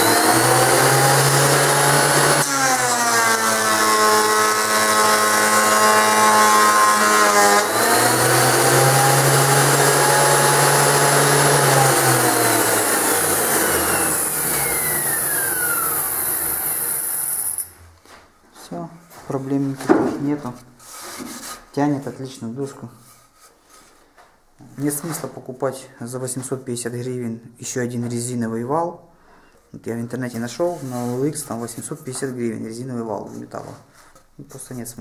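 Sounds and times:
board feeding through planer: 0:00.0 - 0:17.6
thickness planer running: 0:00.0 - 0:17.7.

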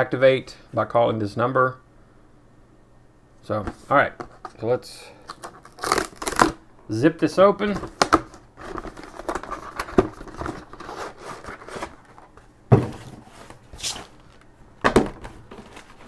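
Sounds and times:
cardboard tearing: 0:05.3 - 0:06.6, 0:08.0 - 0:12.1
handling box and plastic tray: 0:07.7 - 0:16.0.

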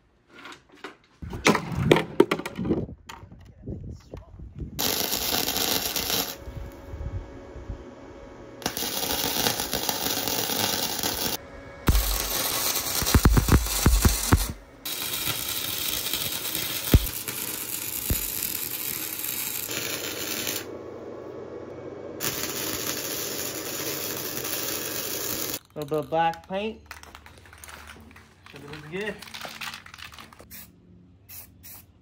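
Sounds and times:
welder arc crackling and hissing: 0:04.8 - 0:06.8, 0:08.6 - 0:20.7, 0:22.2 - 0:26.6.

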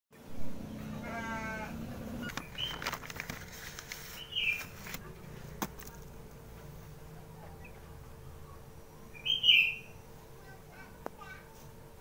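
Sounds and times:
bleat-like animal call: 0:00.8 - 0:01.8
small bird chirps: 0:02.2 - 0:02.8, 0:04.1 - 0:04.7, 0:09.1 - 0:10.0.

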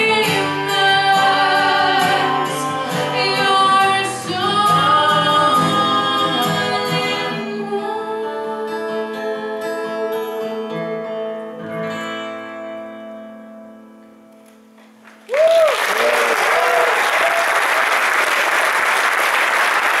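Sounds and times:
audience applauding: 0:15.0 - 0:20.0
audience whoops and cheers: 0:15.2 - 0:20.0.

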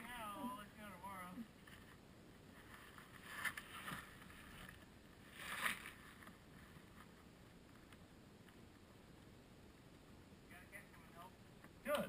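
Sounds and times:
outdoor background hiss: 0:00.0 - 0:12.0
soft rustling: 0:01.4 - 0:10.2.

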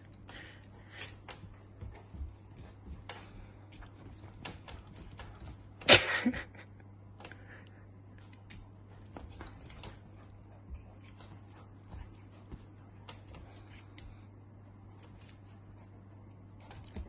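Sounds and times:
steady low hum: 0:00.0 - 0:17.0
claws and toy scuffing on floor: 0:00.2 - 0:05.7, 0:08.5 - 0:16.0.

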